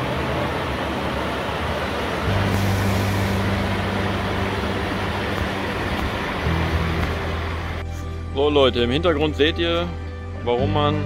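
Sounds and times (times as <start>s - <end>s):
river pouring over a weir: 0.0s - 7.8s.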